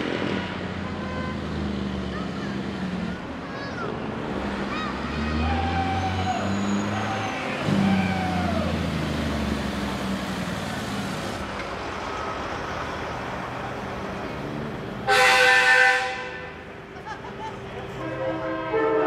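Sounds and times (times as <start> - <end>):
diesel truck driving past: 0.0 - 18.8
multi-tone air horn blast: 15.1 - 16.5, 18.0 - 19.0.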